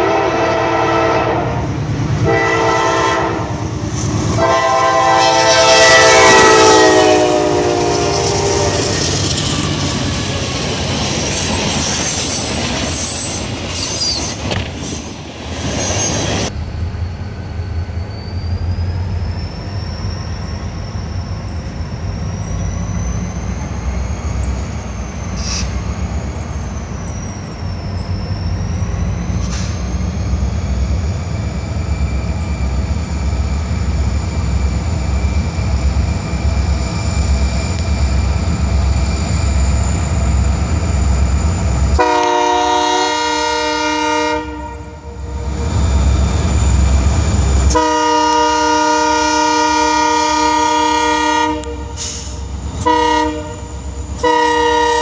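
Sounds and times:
diesel locomotive engine rumble: 0.0 - 55.0
high wheel squeal: 4.4 - 44.0, 45.0 - 51.2, 51.8 - 55.0
train wheels clattering over rail joints: 7.6 - 15.2.

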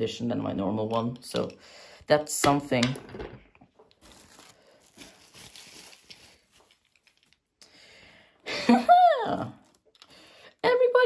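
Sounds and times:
packaging rustling: 3.7 - 7.6.

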